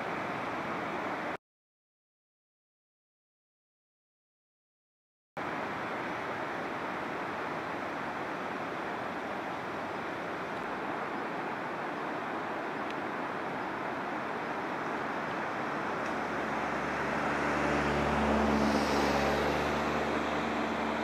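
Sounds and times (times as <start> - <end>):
steady rushing noise: 5.4 - 21.0
vehicle engine hum: 5.4 - 21.0.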